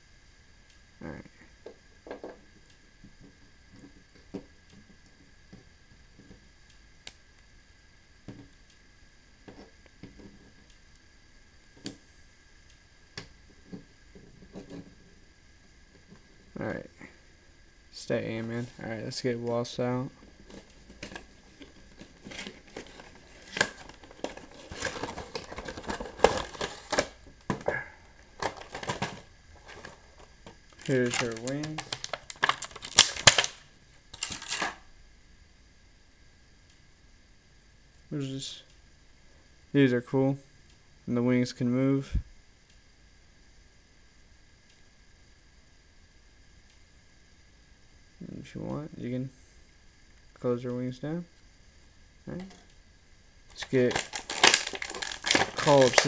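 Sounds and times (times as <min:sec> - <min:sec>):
plastic packaging crinkling: 0:20.4 - 0:34.8, 0:53.5 - 0:56.0
hands handling plastic figure: 0:20.5 - 0:27.7, 0:28.4 - 0:33.6, 0:53.6 - 0:56.0.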